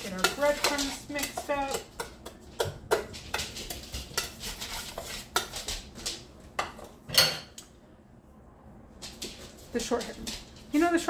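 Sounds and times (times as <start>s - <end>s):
whisk scraping ceramic bowl: 0.0s - 6.0s.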